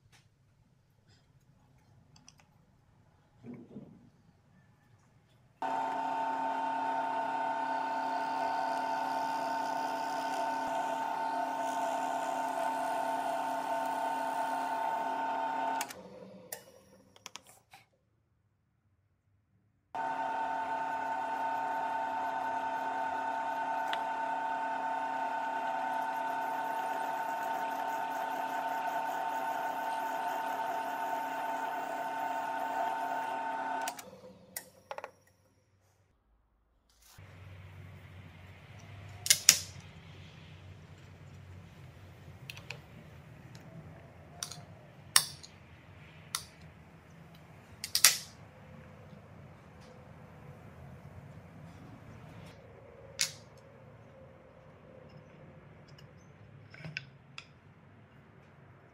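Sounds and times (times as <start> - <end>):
table saw motor whine: 5.6 - 16.5, 20.0 - 34.6.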